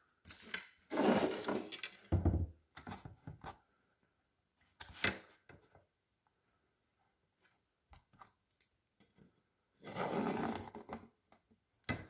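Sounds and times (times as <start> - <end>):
ruler sliding on canvas board: 0.9 - 1.8.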